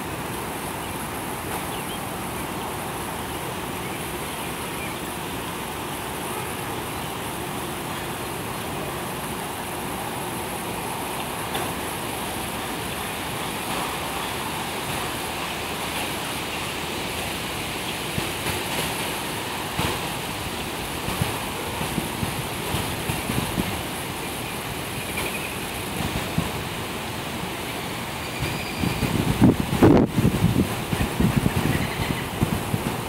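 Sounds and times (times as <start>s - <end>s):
insects droning: 0.0s - 29.6s
broad rushing hiss: 0.0s - 33.0s
wind rumble on microphone: 28.4s - 33.0s.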